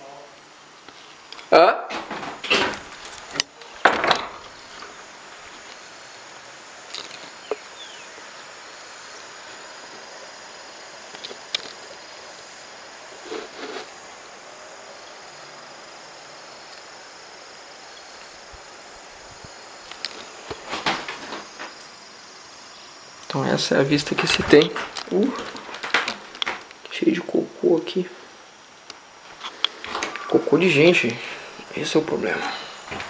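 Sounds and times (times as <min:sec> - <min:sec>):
high insect chirring: 0:00.0 - 0:33.0.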